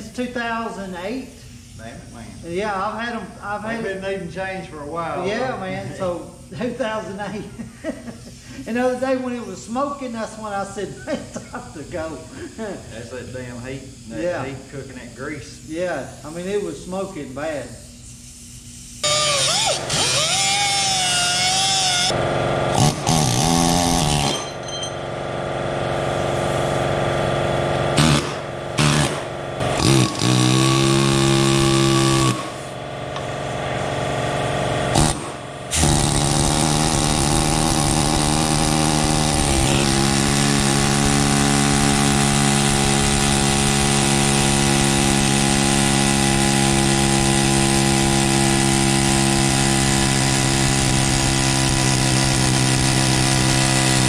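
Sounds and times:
steady mechanical hum: 0:00.0 - 0:54.0
angle grinder cutting steel: 0:19.0 - 0:25.0, 0:27.7 - 0:32.7, 0:34.9 - 0:54.0.

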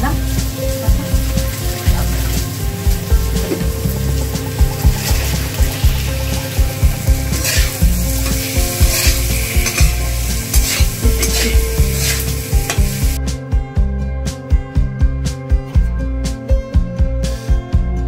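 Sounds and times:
oil sizzling: 0:00.0 - 0:13.2
metal spatula scraping a pan: 0:04.6 - 0:13.1.

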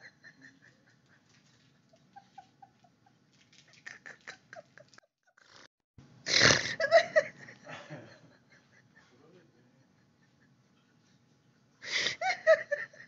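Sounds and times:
woman laughing behind hand: 0:00.0 - 0:05.6, 0:12.0 - 0:13.0.

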